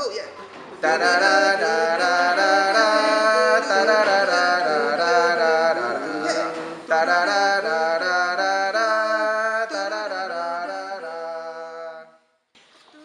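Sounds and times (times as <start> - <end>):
music with long held notes: 0.8 - 10.9.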